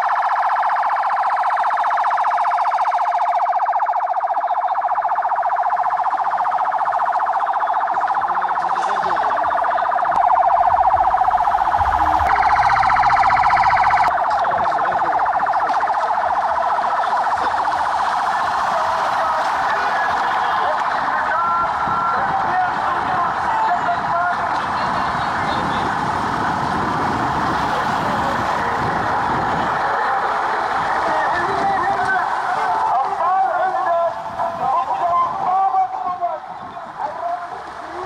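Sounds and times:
police sirens wailing: 0:00.0 - 0:38.0
low rumble: 0:10.2 - 0:14.1.

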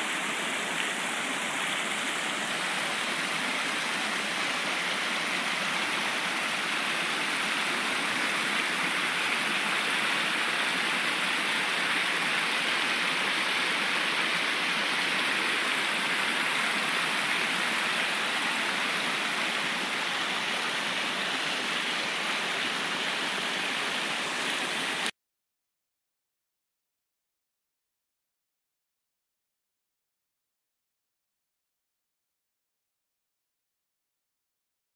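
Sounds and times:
stream splashing over rocks: 0:00.0 - 0:25.1.

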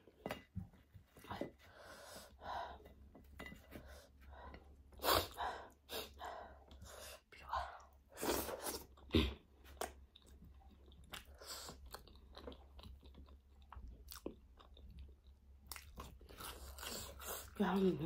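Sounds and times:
chewing and mouth smacks: 0:09.7 - 0:17.5.

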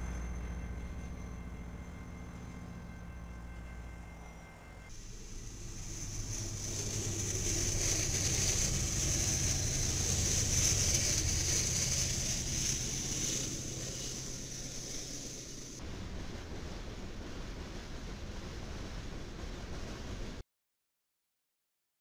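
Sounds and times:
train wheels rumbling on rails: 0:00.0 - 0:20.4
steady high hiss: 0:04.9 - 0:20.4.

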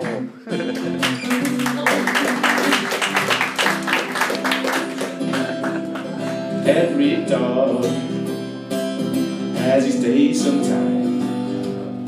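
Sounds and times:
acoustic guitar strumming: 0:00.0 - 0:12.0.

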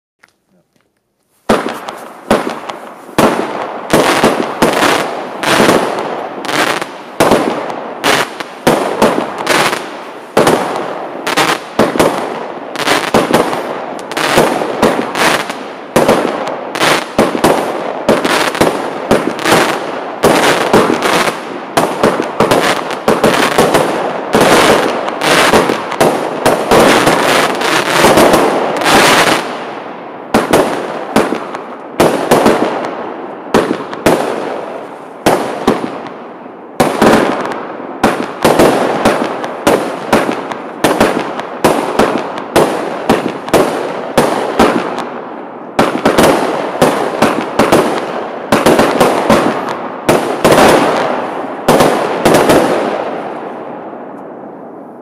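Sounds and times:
fireworks launching and bursting: 0:01.4 - 0:55.0.

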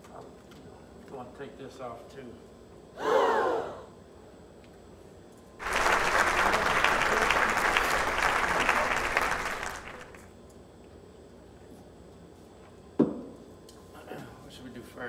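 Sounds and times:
audience applauding: 0:05.6 - 0:10.3.

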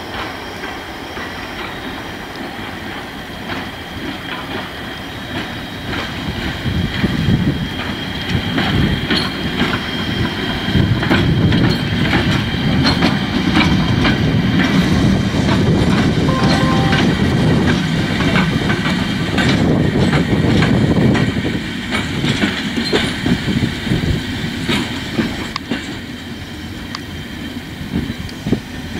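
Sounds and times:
steady high tone: 0:16.3 - 0:17.7.

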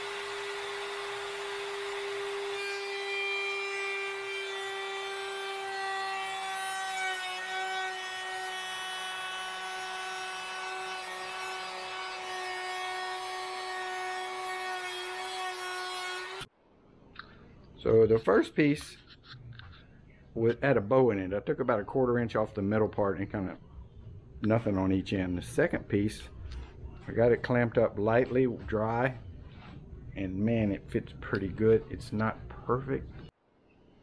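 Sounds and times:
wood router whining: 0:00.0 - 0:16.5.

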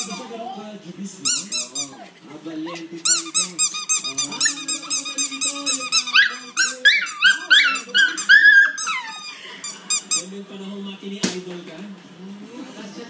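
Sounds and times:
squeaky dog toy squeaking: 0:00.0 - 0:00.6, 0:01.2 - 0:02.1, 0:03.0 - 0:10.3.

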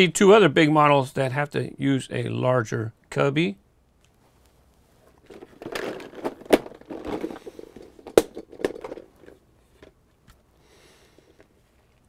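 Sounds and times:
plastic case rattling with toy cars: 0:05.2 - 0:10.0.

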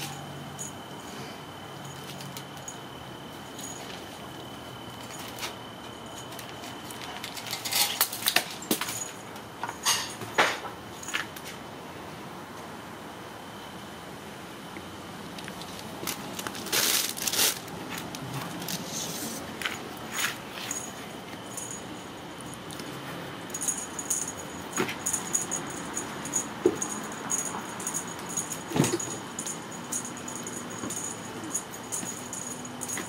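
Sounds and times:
small bell jingling: 0:20.6 - 0:22.8, 0:23.4 - 0:33.0.

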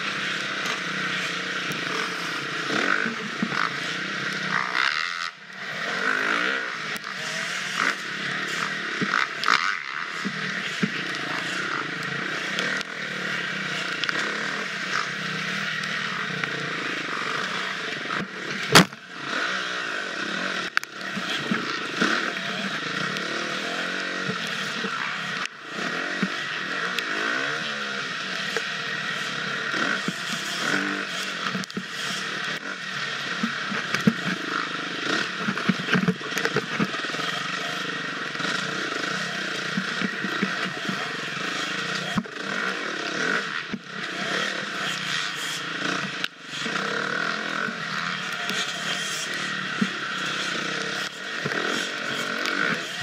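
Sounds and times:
dirt bike engine revving: 0:00.0 - 0:53.0.

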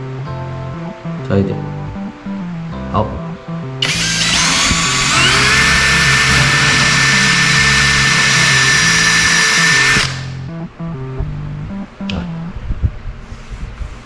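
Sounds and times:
electric drill driving screw: 0:03.8 - 0:10.4.

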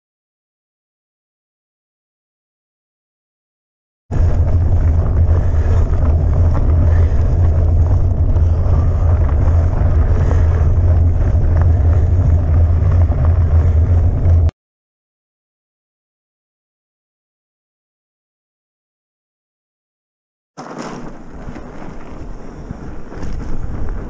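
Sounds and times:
bike tyres rolling on gravel: 0:04.1 - 0:14.5, 0:20.6 - 0:24.0
wind buffeting microphone: 0:04.1 - 0:14.5, 0:20.6 - 0:24.0.

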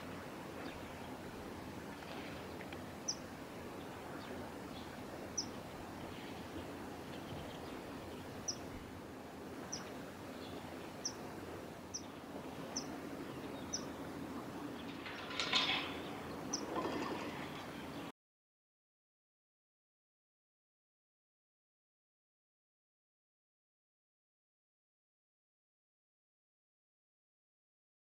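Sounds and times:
kingfisher calls: 0:11.0 - 0:11.2, 0:12.7 - 0:13.0.

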